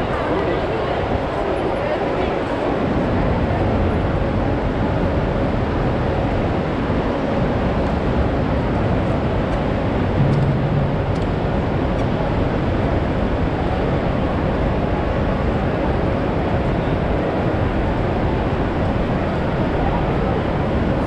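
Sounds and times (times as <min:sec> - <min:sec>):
platform crowd noise: 0:00.0 - 0:21.0
low drone: 0:09.0 - 0:13.7.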